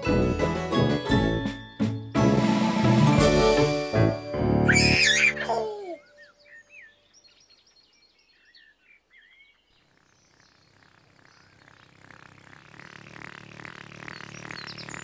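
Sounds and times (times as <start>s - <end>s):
music: 0.0s - 5.5s
faint birdsong: 4.7s - 15.0s.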